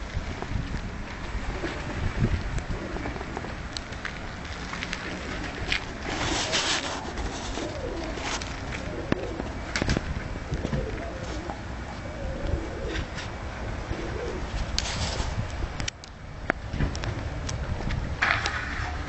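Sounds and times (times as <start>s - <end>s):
rustle: 0.0s - 19.0s
pigeons cooing: 2.6s - 3.5s, 5.2s - 9.8s, 10.4s - 14.6s.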